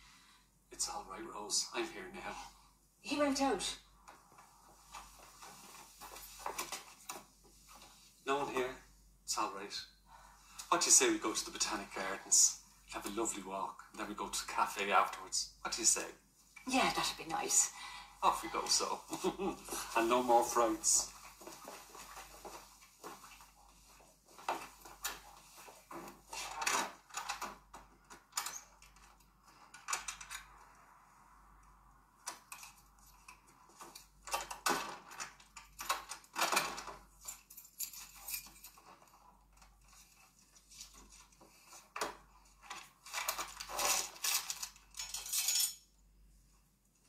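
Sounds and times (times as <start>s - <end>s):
kitchen items clattering: 42.7s - 45.8s.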